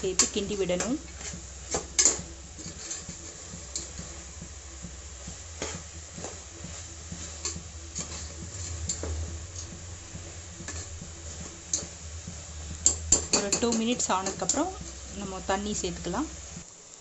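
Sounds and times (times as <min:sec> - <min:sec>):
food sizzling: 0:00.0 - 0:17.0
ladle scraping a pot: 0:01.0 - 0:04.2, 0:05.6 - 0:12.0.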